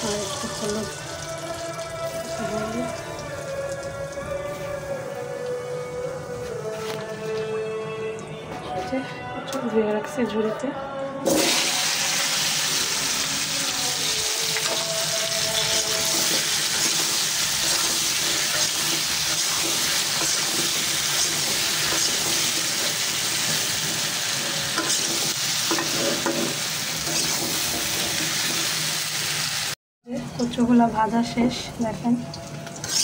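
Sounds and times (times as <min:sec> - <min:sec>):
food sizzling in hot oil: 0:00.0 - 0:06.2, 0:11.2 - 0:29.8, 0:32.3 - 0:33.0.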